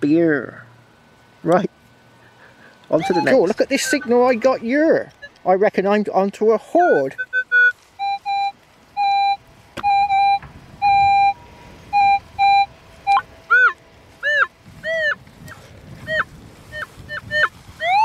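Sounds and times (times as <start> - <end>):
metal detector beeps: 3.0 - 4.5, 5.1 - 5.4, 7.1 - 15.2, 16.8 - 18.0.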